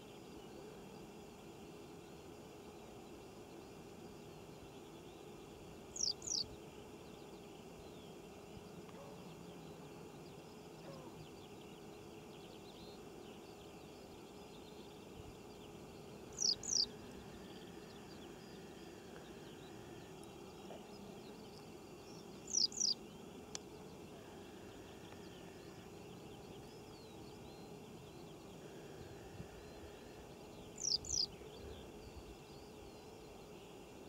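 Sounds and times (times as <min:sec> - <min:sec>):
low hiss: 0:00.0 - 0:34.0
bird calling: 0:06.0 - 0:06.4, 0:16.3 - 0:17.0, 0:22.4 - 0:23.0, 0:30.8 - 0:31.3.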